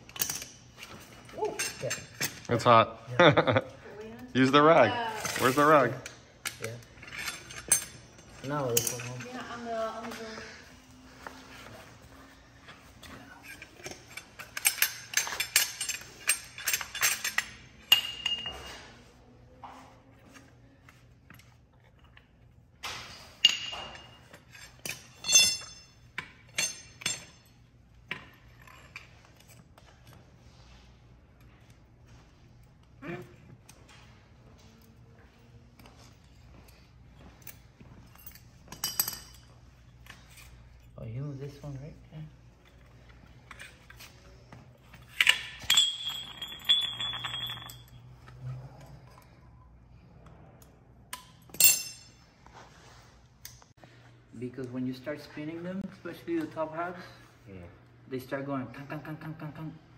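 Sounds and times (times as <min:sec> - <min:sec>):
metal tools clinking: 0:00.0 - 0:02.8, 0:04.1 - 0:19.2, 0:20.4 - 0:49.6, 0:51.1 - 0:53.6
metallic ring: 0:05.2 - 0:09.4, 0:13.4 - 0:19.1, 0:22.9 - 0:29.5, 0:45.0 - 0:48.3, 0:51.1 - 0:52.4.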